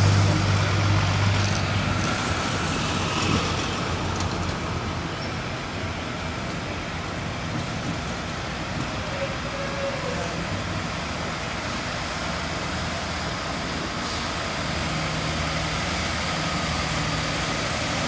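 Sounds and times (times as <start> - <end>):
diesel lorry engine hum: 0.0 - 18.0
traffic noise: 0.0 - 18.0.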